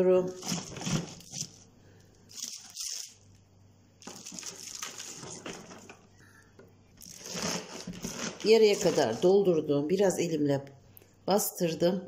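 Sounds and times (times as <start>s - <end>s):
cabbage rustling and crunching: 0.3s - 1.6s, 2.2s - 3.4s, 4.0s - 5.9s, 7.0s - 9.5s.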